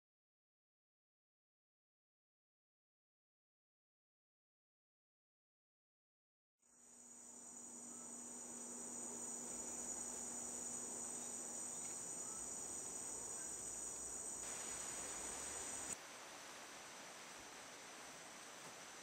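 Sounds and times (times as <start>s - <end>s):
insects trilling: 6.7s - 16.0s.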